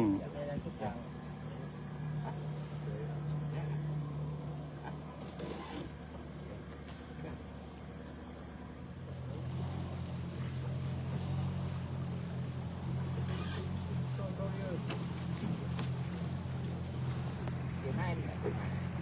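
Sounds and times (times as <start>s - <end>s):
small boat motor running: 0.0s - 19.0s.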